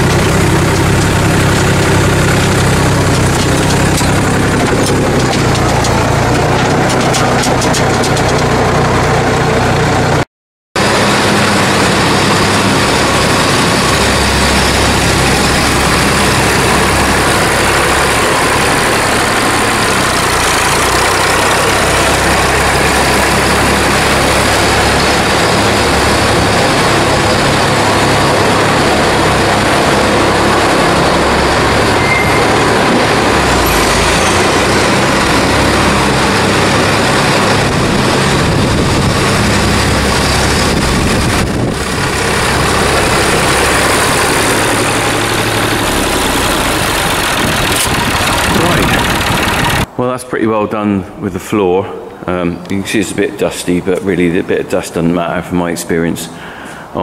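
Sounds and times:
yard scraper on concrete: 0:00.0 - 0:08.8, 0:39.2 - 0:49.9
tractor engine running: 0:00.0 - 0:10.2, 0:10.8 - 0:50.2
loud even rushing noise: 0:10.8 - 0:50.0.

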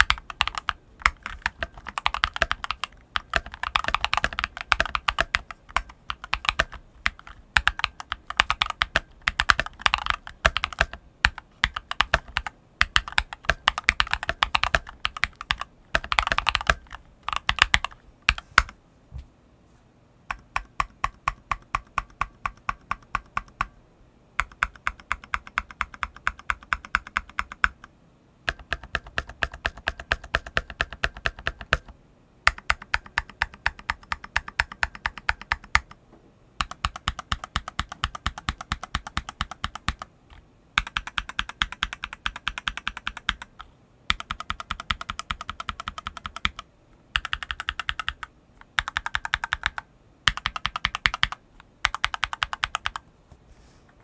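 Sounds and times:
keyboard keys pressed rhythmically: 0:00.0 - 0:18.0
fast typing on mechanical keyboard: 0:00.0 - 0:18.7, 0:20.3 - 0:23.7, 0:24.4 - 0:27.9, 0:28.5 - 0:31.9, 0:32.5 - 0:36.0, 0:36.6 - 0:40.1, 0:40.8 - 0:53.0.

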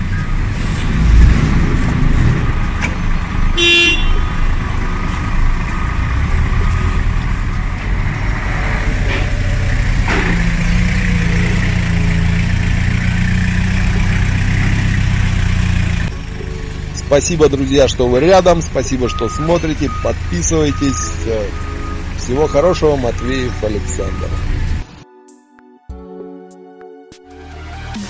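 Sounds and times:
forklift engine running: 0:00.0 - 0:24.8
short horn beep: 0:03.6 - 0:04.4.

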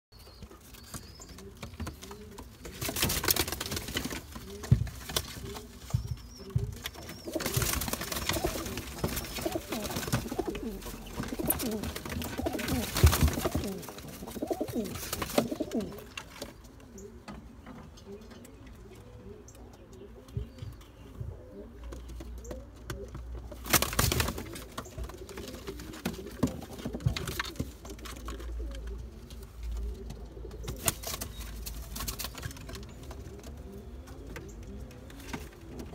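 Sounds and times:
pigeons cooing: 0:01.1 - 0:31.4, 0:32.1 - 0:35.9.

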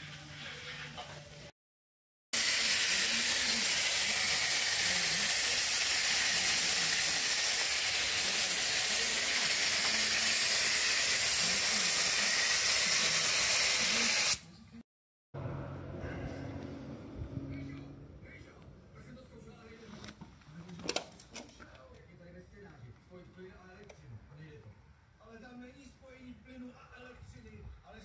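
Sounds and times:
spray gun hissing: 0:02.4 - 0:14.4.

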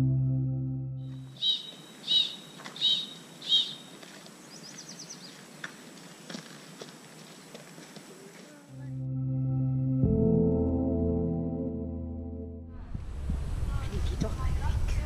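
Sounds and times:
background hiss: 0:01.1 - 0:08.8
songbird chirping and trilling: 0:01.3 - 0:05.4.

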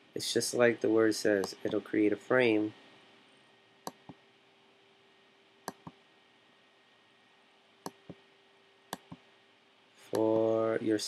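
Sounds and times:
computer mouse button clicking: 0:05.7 - 0:06.0, 0:08.9 - 0:09.2.

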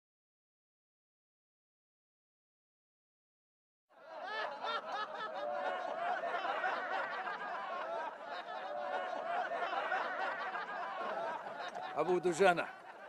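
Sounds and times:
crowd of men shouting and cheering: 0:04.0 - 0:13.0.

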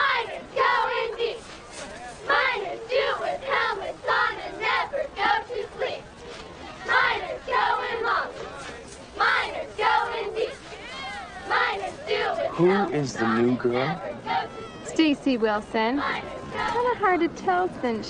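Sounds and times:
girls chanting a cheer: 0:00.0 - 0:01.4, 0:02.2 - 0:06.0, 0:06.8 - 0:08.5, 0:09.2 - 0:15.1, 0:15.8 - 0:17.0.

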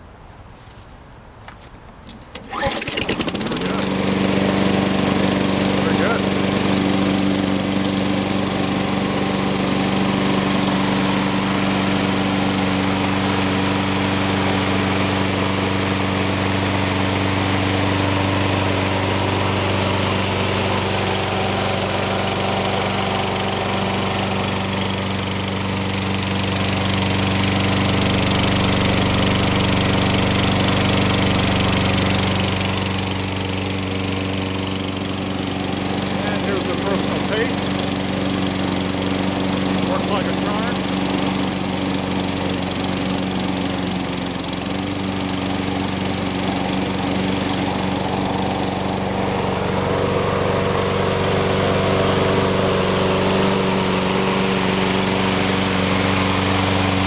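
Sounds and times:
lawn mower engine running: 0:02.0 - 0:57.0.

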